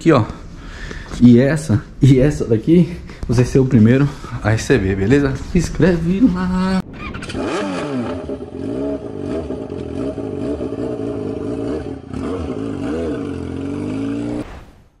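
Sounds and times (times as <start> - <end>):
small engine revving: 6.8 - 14.5.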